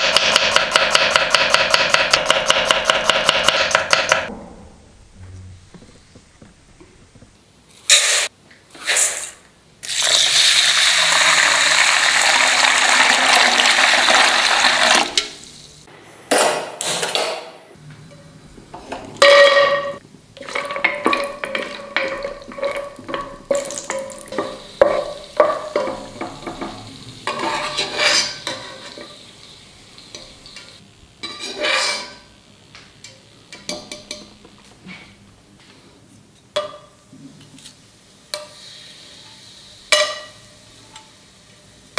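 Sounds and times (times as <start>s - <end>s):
spatula scraping and knocking pan: 18.7s - 29.2s, 30.1s - 32.2s
nuts sizzling in oil: 20.4s - 32.4s, 38.1s - 41.9s.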